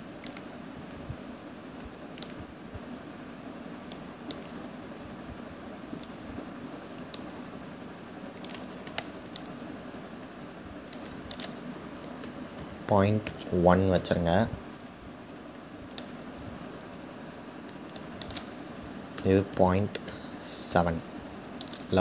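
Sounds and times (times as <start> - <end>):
low room hiss: 0.0 - 22.0
computer mouse clicks: 0.2 - 1.0, 1.8 - 2.4, 3.8 - 4.8, 6.0 - 6.2, 6.9 - 7.3, 8.4 - 9.8, 10.9 - 14.1, 15.9 - 16.2, 17.6 - 18.6, 21.6 - 21.9.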